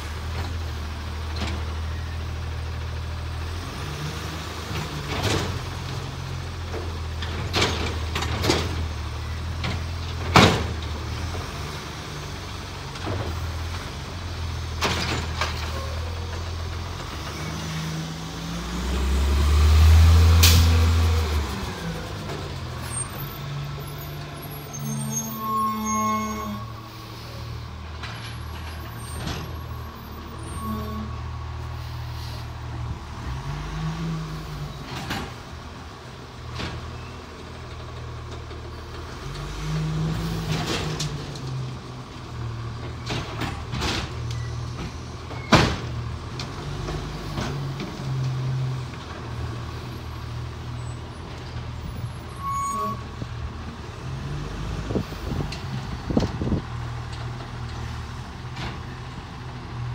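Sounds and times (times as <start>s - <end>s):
garbage truck engine revving: 16.4s - 25.2s.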